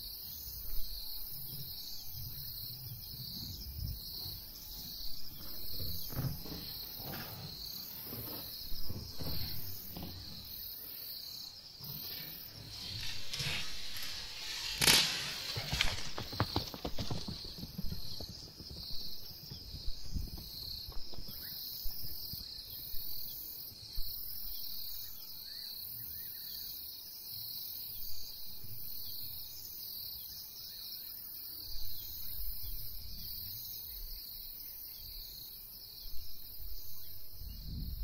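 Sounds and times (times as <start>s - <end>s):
insects chirring: 0.0s - 38.0s.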